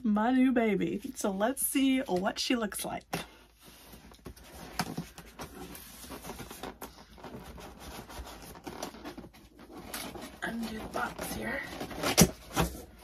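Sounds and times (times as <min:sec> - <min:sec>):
cardboard scraping: 0:03.6 - 0:13.0.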